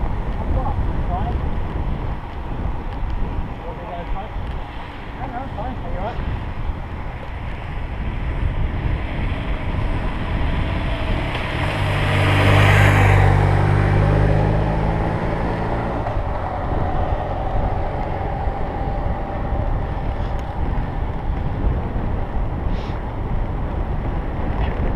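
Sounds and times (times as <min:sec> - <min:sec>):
road rush: 0:00.0 - 0:24.9
wind on microphone: 0:00.0 - 0:24.9
motor vehicle driving past: 0:07.6 - 0:22.0.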